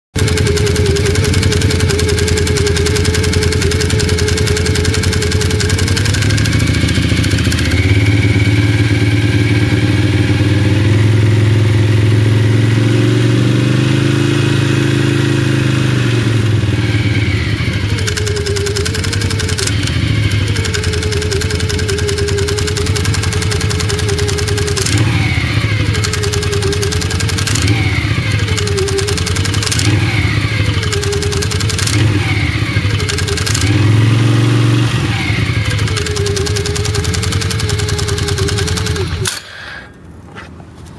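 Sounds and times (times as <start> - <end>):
quad engine revving: 0.1 - 39.6.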